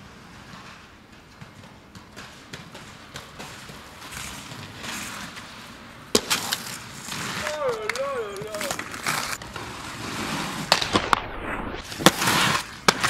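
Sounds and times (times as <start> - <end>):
loud skate impact: 0.0 - 13.0
skate wheels rolling on concrete: 0.0 - 13.0
clacks: 0.3 - 6.7.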